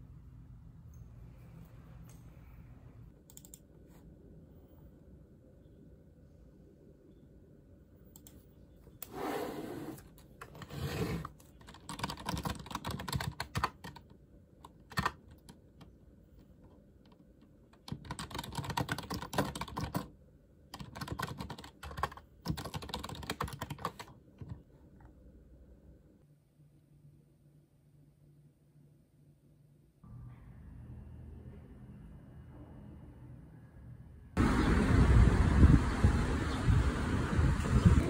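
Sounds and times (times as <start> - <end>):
typing on computer keyboard: 11.4 - 15.9, 17.0 - 20.1, 20.7 - 24.6.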